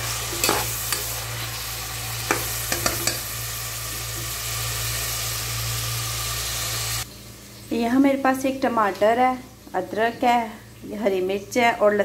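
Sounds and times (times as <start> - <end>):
onions sizzling in oil: 0.0 - 11.4
spoon knocking and scraping pot: 0.3 - 1.1, 2.3 - 3.3.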